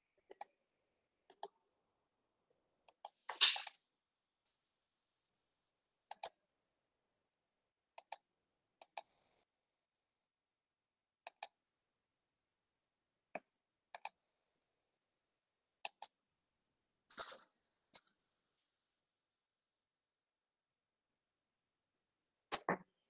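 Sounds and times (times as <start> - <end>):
computer mouse clicking: 0.3 - 0.5, 1.3 - 1.5, 2.9 - 3.7, 6.1 - 6.4, 8.0 - 8.2, 8.8 - 9.1, 11.3 - 11.6, 13.4 - 14.2, 15.8 - 16.2.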